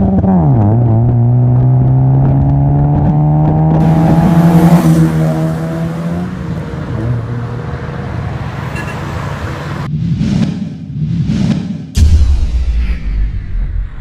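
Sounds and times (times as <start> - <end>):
car engine accelerating: 0.0 - 9.9.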